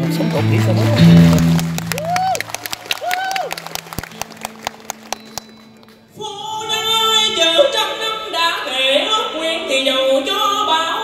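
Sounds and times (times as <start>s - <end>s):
man singing into a microphone: 6.2s - 11.0s.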